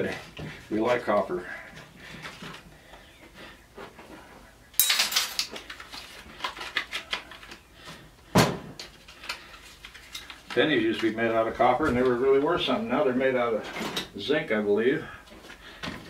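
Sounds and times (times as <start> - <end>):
plastic and metal parts clattering: 4.8 - 7.6, 8.4 - 11.2, 13.6 - 14.1.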